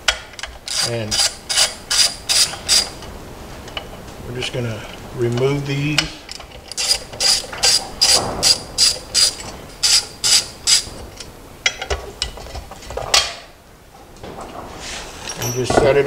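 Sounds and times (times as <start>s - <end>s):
hand ratchet clicking: 0.4s - 2.9s, 6.7s - 10.9s.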